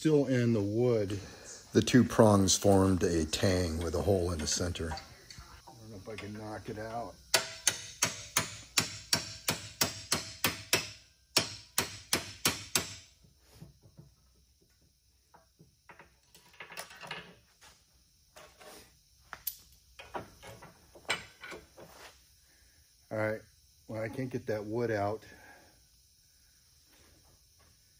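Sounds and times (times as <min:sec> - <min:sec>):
hammer striking metal tool: 0:07.3 - 0:13.0.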